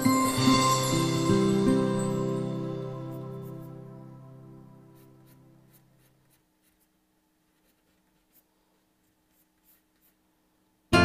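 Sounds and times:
soft background music: 0.0s - 6.2s
pencil scratching on paper: 3.0s - 4.0s, 4.7s - 10.3s.

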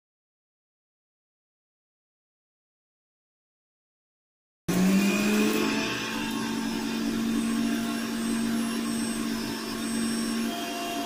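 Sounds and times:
mixer grinder running: 4.7s - 11.0s.

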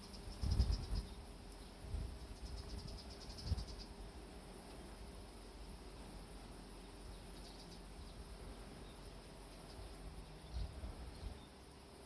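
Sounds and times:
insect chirping: 0.0s - 12.0s
wind buffeting microphone: 0.3s - 1.1s, 1.8s - 3.8s.

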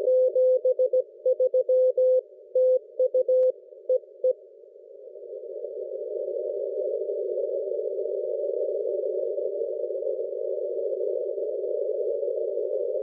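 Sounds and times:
receiver hiss: 3.1s - 13.0s.

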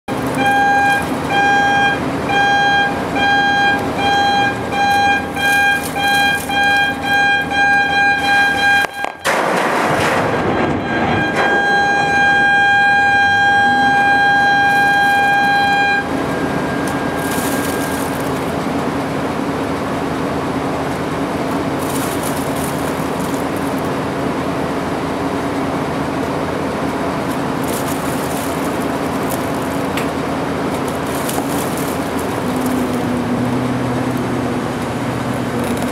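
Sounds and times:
warning horn blasts: 0.1s - 18.5s.

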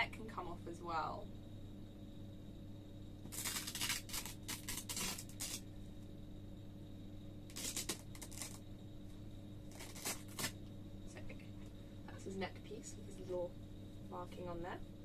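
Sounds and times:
hook and loop fastener ripping: 3.3s - 5.6s, 7.5s - 8.6s, 9.7s - 10.6s.

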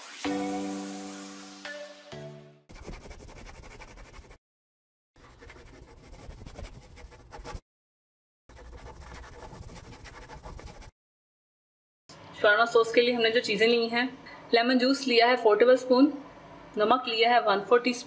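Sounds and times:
marker pen scratching: 2.7s - 4.4s, 5.2s - 7.6s, 8.5s - 10.9s.

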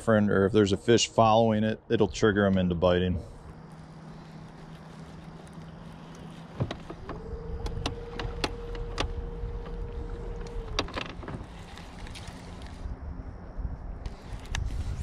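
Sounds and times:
electric motor whining: 3.7s - 12.9s.

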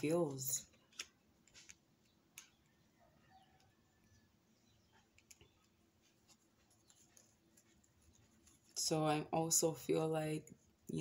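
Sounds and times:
cards being shuffled: 0.7s - 2.6s.

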